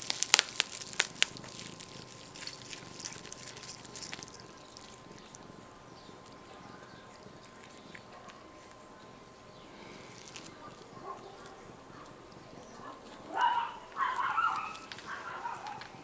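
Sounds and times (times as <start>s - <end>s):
bubble wrap snaps: 0.0s - 4.4s
bubble wrap crinkling: 0.0s - 5.4s, 9.8s - 11.6s, 13.9s - 16.0s.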